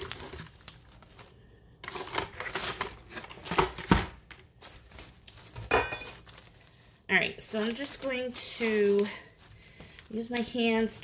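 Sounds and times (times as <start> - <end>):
plastic wrap crinkling: 0.0 - 11.0.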